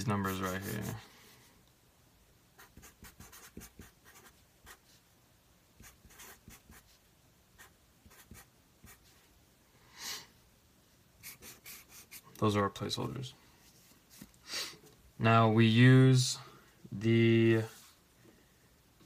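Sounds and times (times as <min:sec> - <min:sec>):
marker pen writing on paper: 0:02.6 - 0:04.9, 0:05.8 - 0:07.0, 0:07.6 - 0:09.2, 0:11.2 - 0:12.2.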